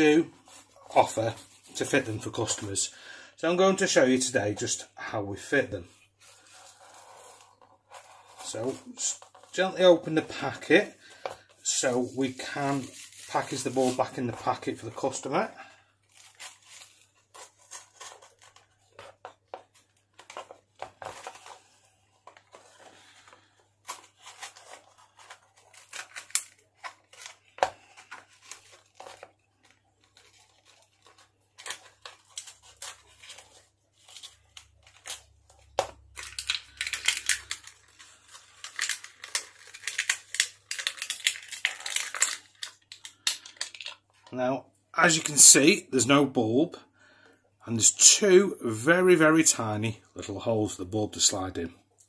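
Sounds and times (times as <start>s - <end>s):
plastic blister pack crackling: 6.3s - 44.3s.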